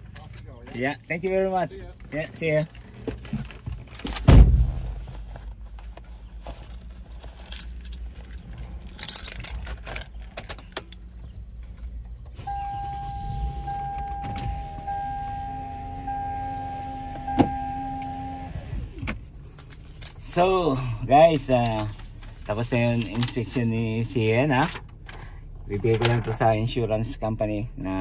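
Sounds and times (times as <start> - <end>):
heavy thump: 4.2 - 5.2
keys jangling: 7.4 - 11.0
electronic warning tone: 12.4 - 18.6.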